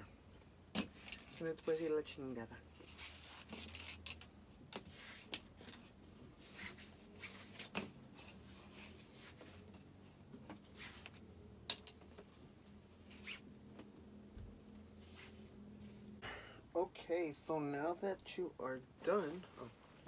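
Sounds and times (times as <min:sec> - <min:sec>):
faint steady hum: 0:00.0 - 0:20.0
fabric rustling: 0:02.7 - 0:04.1, 0:06.3 - 0:10.0, 0:14.8 - 0:16.2.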